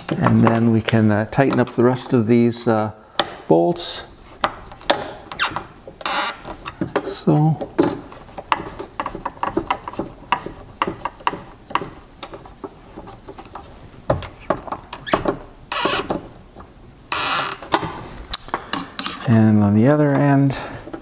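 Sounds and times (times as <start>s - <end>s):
screwdriver clicks and creaks: 4.7s - 6.8s.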